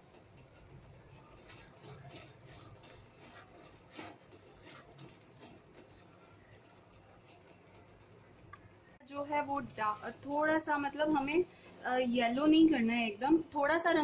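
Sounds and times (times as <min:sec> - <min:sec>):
spatula scraping metal pan: 0:00.0 - 0:06.7.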